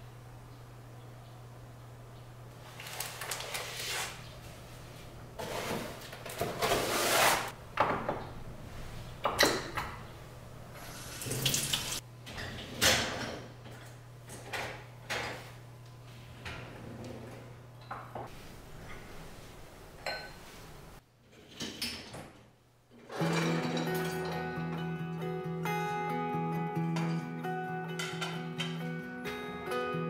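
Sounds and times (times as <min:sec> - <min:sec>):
plastic rustling: 0:02.5 - 0:04.2.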